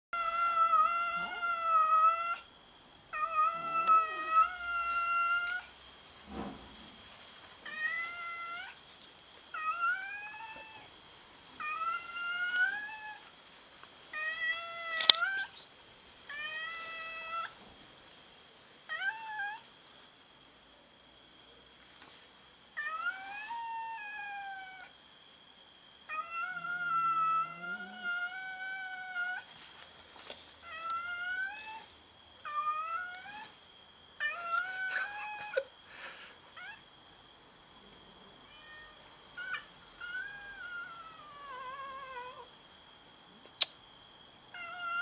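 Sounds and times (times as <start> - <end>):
cats meowing: 0.2 - 2.5, 3.1 - 5.7, 7.6 - 8.8, 9.5 - 10.9, 22.8 - 24.9, 26.1 - 29.5, 34.2 - 35.7, 38.4 - 42.5.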